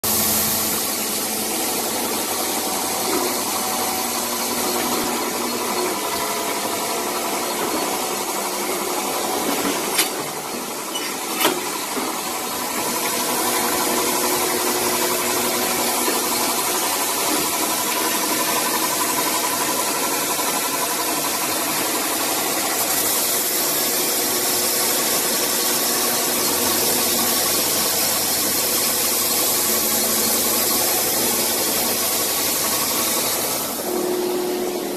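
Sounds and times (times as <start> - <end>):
polishing machine motors humming: 0.1 - 34.9.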